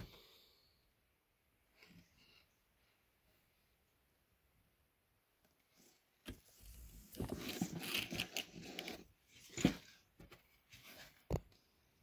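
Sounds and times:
rubbing and scraping on camera body: 0:05.7 - 0:11.4.

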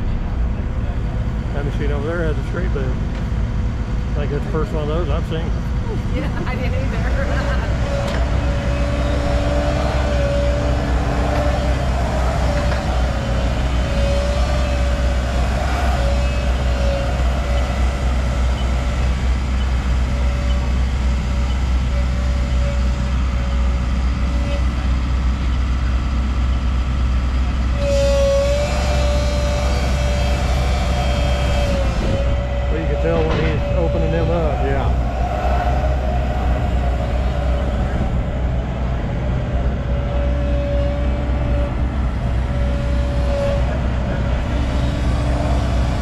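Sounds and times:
excavator diesel engine drone: 0:00.0 - 0:46.0
wavering whine: 0:00.0 - 0:46.0.

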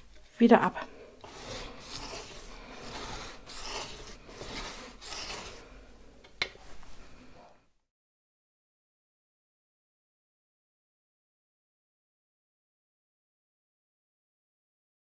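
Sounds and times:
paintbrush scraping on canvas: 0:01.2 - 0:05.9.

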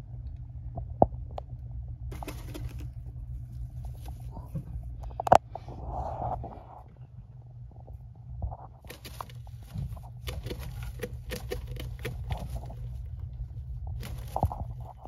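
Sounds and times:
scratchy clicks and rustles: 0:08.8 - 0:15.0.

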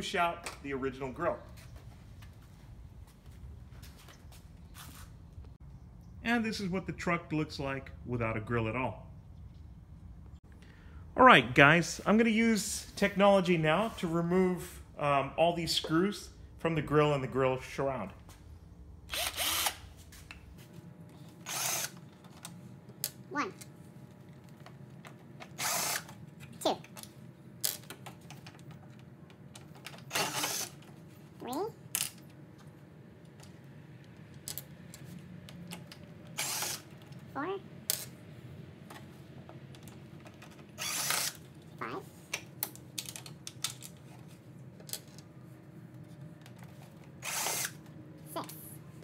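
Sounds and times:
drill bit and screw ticks: 0:19.1 - 0:19.8, 0:30.1 - 0:30.7, 0:36.4 - 0:36.8
drill whine: 0:19.1 - 0:19.8, 0:30.1 - 0:30.7, 0:40.8 - 0:41.4, 0:47.2 - 0:47.8
cordless drill motor whirring: 0:19.1 - 0:19.9, 0:21.4 - 0:22.0, 0:25.5 - 0:26.1, 0:30.1 - 0:30.8, 0:36.4 - 0:36.9, 0:40.8 - 0:41.4, 0:47.2 - 0:47.8.

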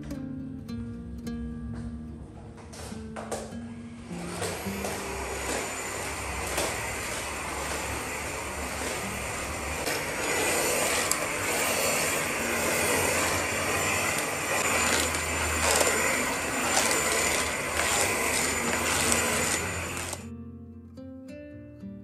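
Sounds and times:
stick vacuum cleaner running: 0:02.8 - 0:20.3.

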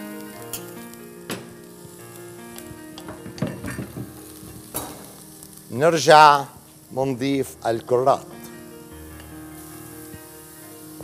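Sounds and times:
onion and garlic sizzling: 0:00.0 - 0:11.0
utensils knocking against pot: 0:03.0 - 0:05.1.

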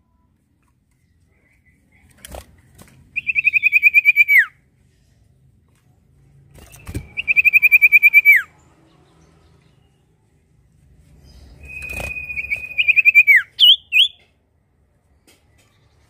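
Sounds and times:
bird singing trilled phrases: 0:06.7 - 0:08.5, 0:11.3 - 0:14.3
wing flutter: 0:11.6 - 0:13.1.

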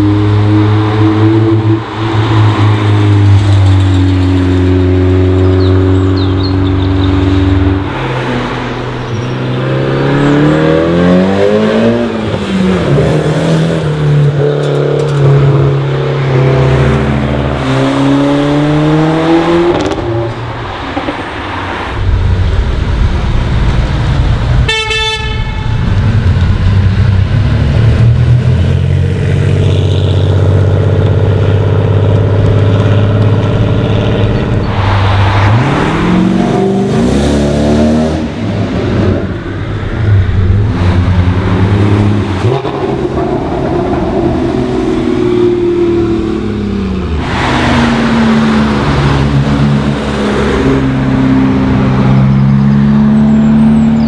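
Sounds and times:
cars accelerating past: 0:00.0 - 0:22.1, 0:26.0 - 0:54.0
car horn toot: 0:24.6 - 0:25.9.

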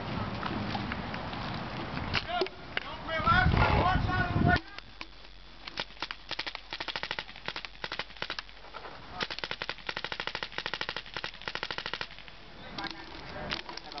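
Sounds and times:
paintball marker rapid firing: 0:04.8 - 0:08.6, 0:09.2 - 0:12.4.

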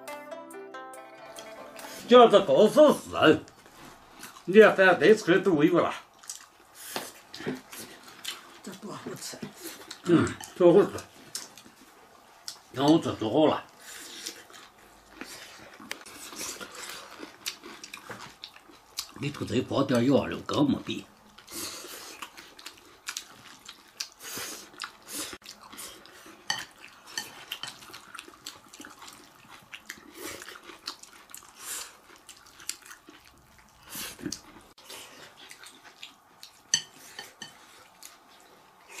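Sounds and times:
soft eating noises: 0:01.2 - 0:39.0
chopsticks clinking on ceramic bowls: 0:36.7 - 0:37.6.

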